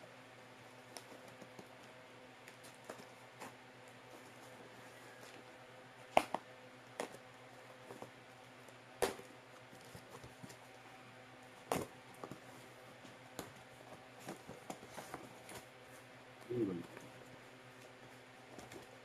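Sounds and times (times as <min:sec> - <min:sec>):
faint steady hum: 0:00.0 - 0:19.0
cardboard clicking and crinkling: 0:11.4 - 0:15.7, 0:17.8 - 0:19.0.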